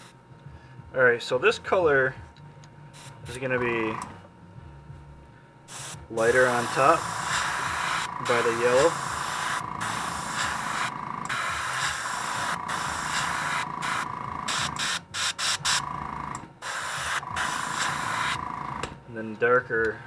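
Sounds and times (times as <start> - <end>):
airbrush spraying hiss: 3.0 - 3.4, 5.7 - 15.8, 16.6 - 18.4.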